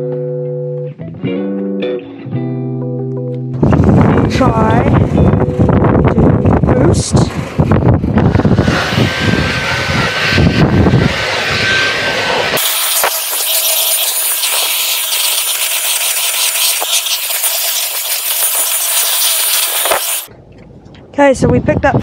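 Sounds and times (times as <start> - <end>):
vacuum cleaner running: 7.4 - 20.3.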